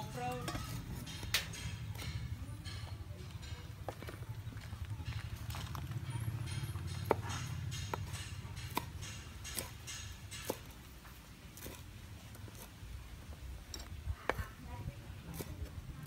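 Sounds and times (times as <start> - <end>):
cleaver chopping on wooden board: 6.5 - 12.8.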